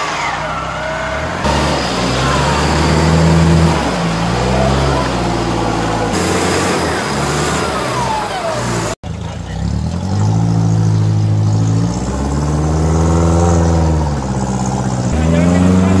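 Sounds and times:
off-road vehicle engine revving: 0:00.0 - 0:16.0.

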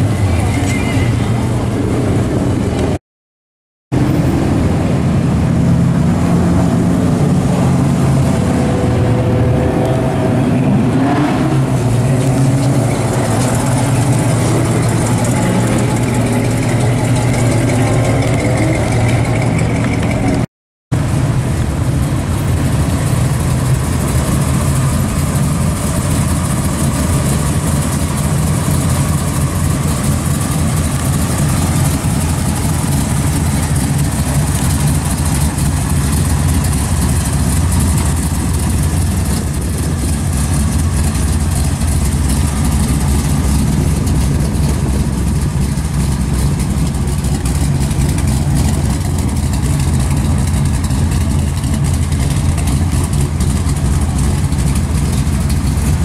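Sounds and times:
car engine idling: 0:11.6 - 0:56.0.

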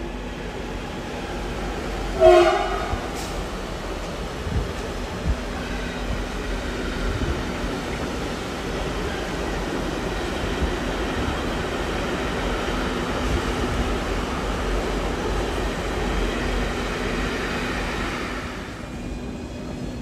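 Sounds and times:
train rumbling: 0:00.0 - 0:20.0.

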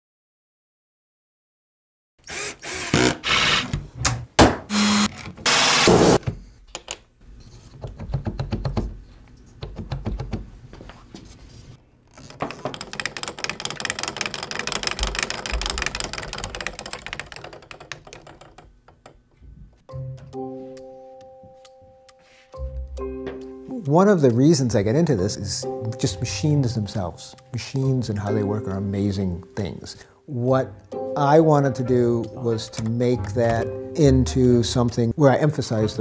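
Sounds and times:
cordless drill running: 0:02.3 - 0:03.7, 0:04.7 - 0:06.2
wooden gears clicking: 0:12.1 - 0:19.3.

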